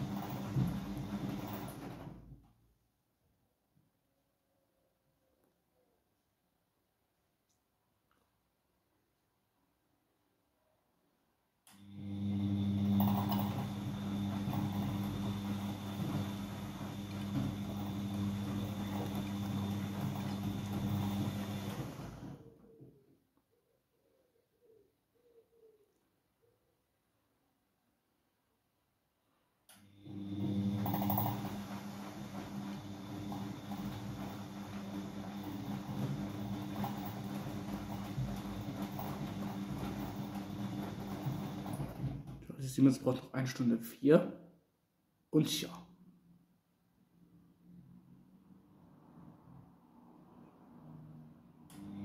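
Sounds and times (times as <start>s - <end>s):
washing machine drum turning: 0.0s - 2.3s, 12.6s - 22.2s, 30.2s - 42.6s
washing machine motor hum: 0.0s - 2.6s, 11.7s - 22.8s, 29.7s - 43.0s, 50.6s - 52.0s.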